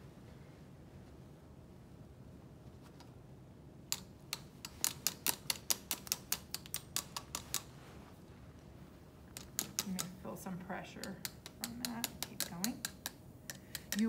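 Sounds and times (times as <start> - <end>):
metal tapping on plastic: 11.0 - 14.0.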